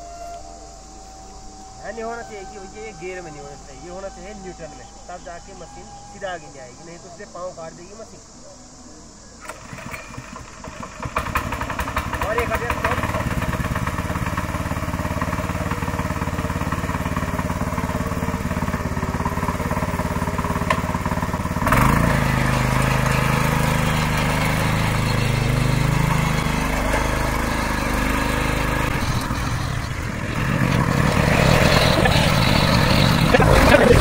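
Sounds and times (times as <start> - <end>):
power tiller engine running: 9.4 - 34.0.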